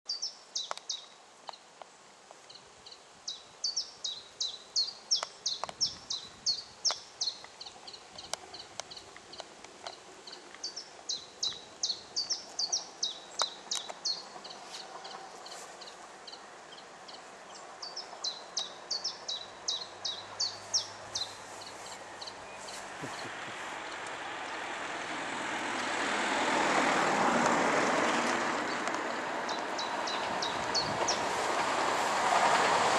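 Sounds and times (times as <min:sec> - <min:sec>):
songbird chirping: 0:00.1 - 0:25.2, 0:28.5 - 0:32.9
train rumble: 0:11.9 - 0:18.6, 0:19.2 - 0:32.9.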